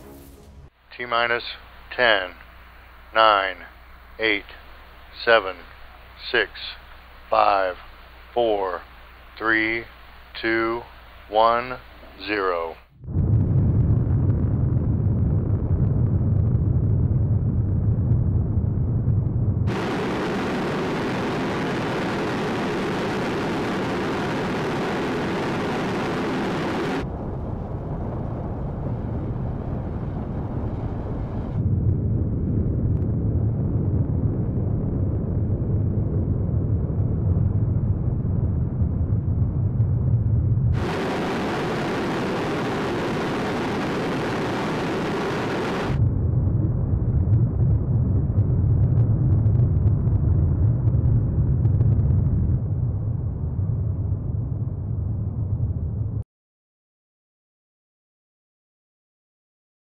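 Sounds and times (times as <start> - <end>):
rocket motor exhaust roar: 13.0 - 55.6.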